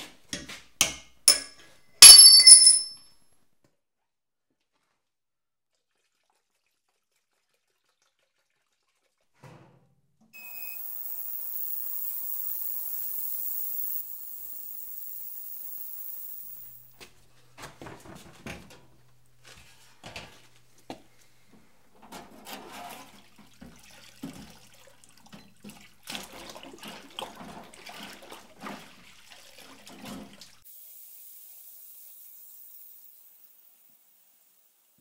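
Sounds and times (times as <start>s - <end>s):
metal parts clinking: 1.3s - 3.0s
cleaning liquid sloshing and dripping: 5.7s - 9.2s, 22.1s - 30.6s.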